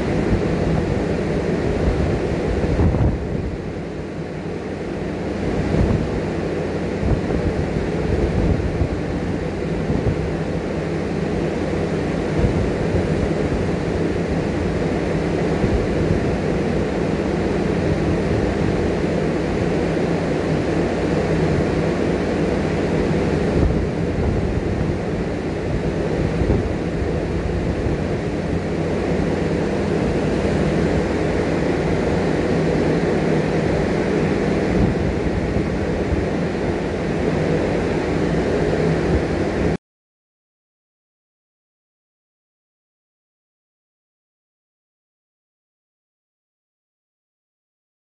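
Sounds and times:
low hum: 0.0 - 39.8.

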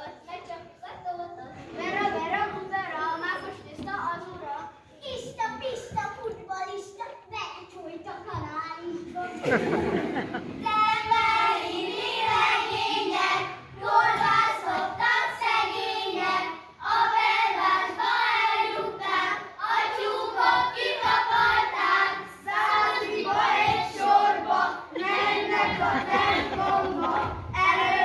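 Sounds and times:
children singing folk song: 9.0 - 28.0.

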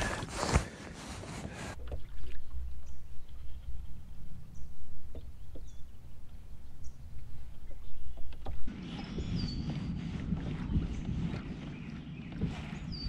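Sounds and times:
handling rustle: 0.0 - 1.8
water lapping against boat hull: 0.0 - 13.0
wind rumbling on microphone: 0.0 - 13.0.

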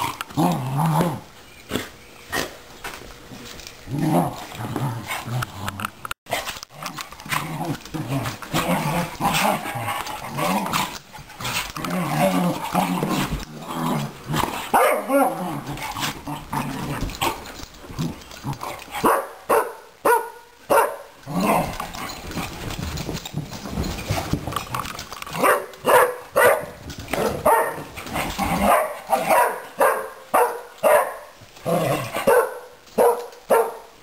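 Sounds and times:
dogs growling and snarling: 0.0 - 2.6, 3.3 - 19.1, 21.2 - 25.8, 26.8 - 29.4, 31.6 - 32.3
dogs barking sharply: 14.7 - 15.2, 19.0 - 21.1, 25.4 - 27.9, 28.6 - 31.4, 32.1 - 33.9.

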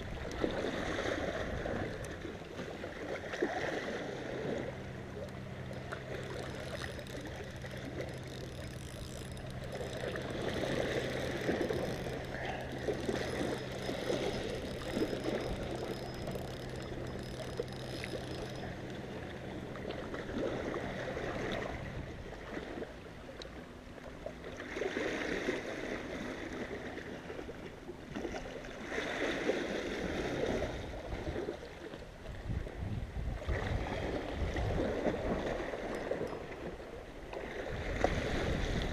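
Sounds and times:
small waves lapping on rocks: 0.0 - 38.9
steady low hum: 3.9 - 24.6.

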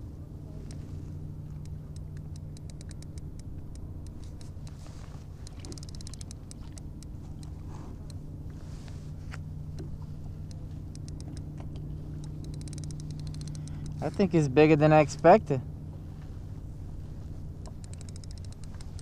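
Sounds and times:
fishing reel clicking: 1.6 - 4.8, 5.4 - 8.2, 10.5 - 11.5, 12.2 - 14.4, 17.6 - 19.0.

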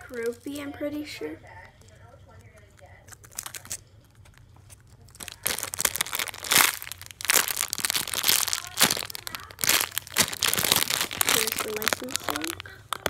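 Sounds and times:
plastic bag crinkling: 0.0 - 1.0, 1.7 - 13.0.

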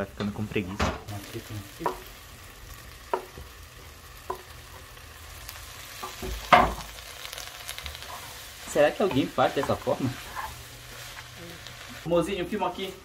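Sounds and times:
food sizzling faintly in a pot: 0.1 - 13.0
clatter and thud against pot: 6.0 - 6.9
knife scraping cutting board: 10.2 - 11.2.

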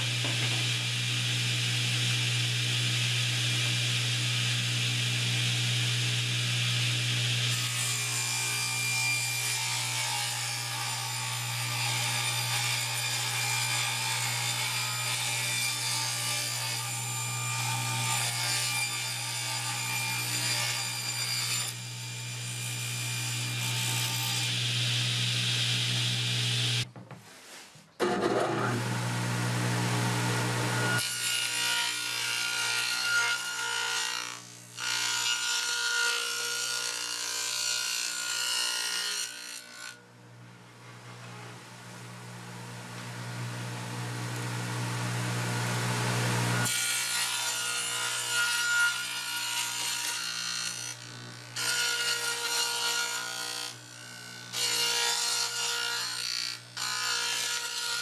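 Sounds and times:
table saw motor hum: 0.0 - 8.4, 21.8 - 26.9, 28.0 - 31.1, 42.2 - 47.0
saw blade cutting wood: 0.0 - 26.9, 46.1 - 58.0.

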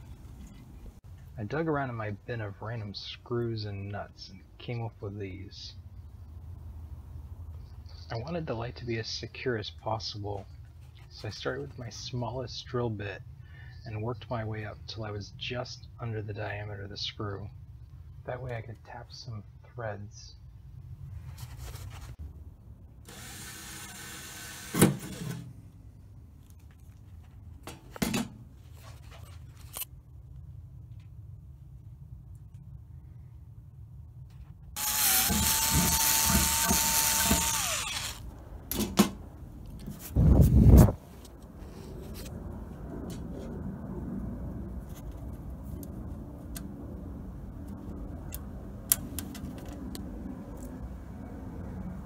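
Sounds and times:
low steady rumble: 0.0 - 24.1, 25.5 - 52.0
hand drill on steel lid: 34.8 - 38.2.

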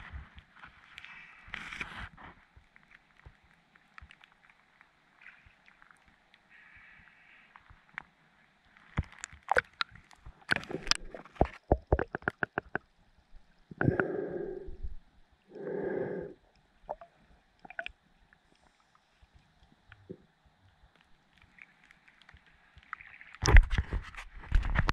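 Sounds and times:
water splashing against camera: 8.8 - 12.9, 16.9 - 18.0, 20.9 - 24.9.

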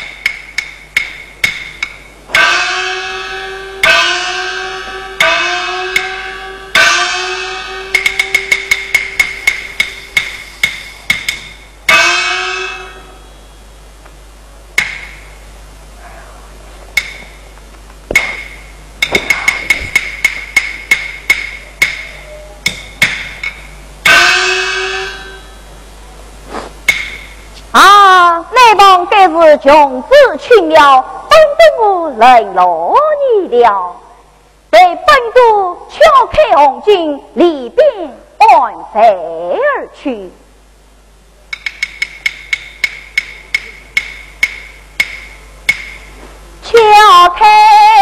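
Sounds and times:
drum strokes: 0.0 - 13.4, 16.8 - 25.7, 26.4 - 27.6, 41.5 - 46.5
cymbal strikes: 0.0 - 13.6, 18.1 - 25.7, 26.6 - 27.5
gong strikes: 2.3 - 10.4.

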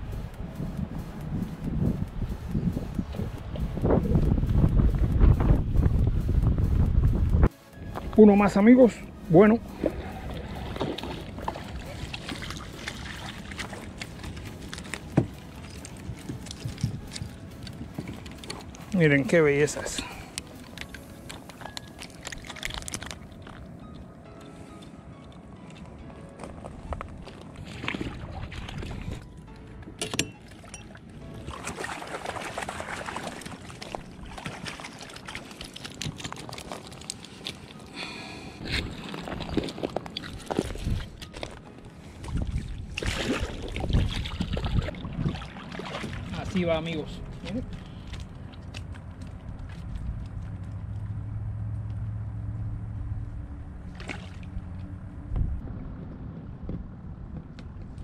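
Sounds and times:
wind and water hiss: 0.0 - 23.8, 30.5 - 50.6.

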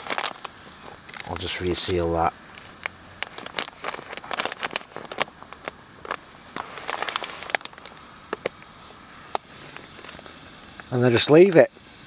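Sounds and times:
plastic bag crinkling: 0.0 - 8.6
faint steady hiss: 0.0 - 12.0.

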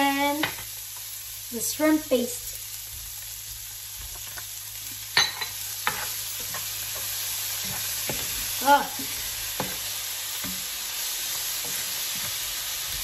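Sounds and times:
food sizzling in a skillet: 0.0 - 13.0
spatula knocking and scraping pan: 5.1 - 10.7.

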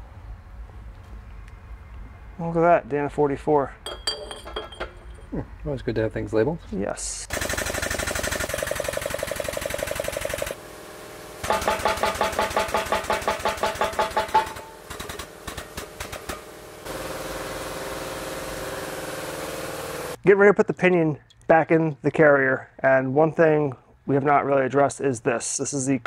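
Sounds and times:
press pump pulsing: 7.3 - 20.2
steady hum: 8.1 - 20.2.

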